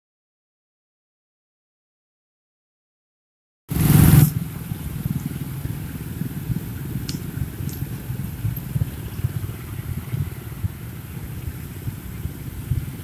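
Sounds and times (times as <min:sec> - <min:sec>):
scooter engines rumbling: 0:03.7 - 0:13.0.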